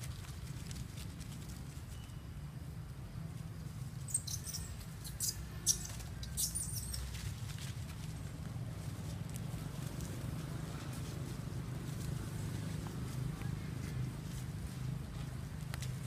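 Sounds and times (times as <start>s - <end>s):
crackling leaf litter: 0.0s - 2.1s, 5.7s - 16.0s
baby monkeys squeaking: 4.0s - 7.2s.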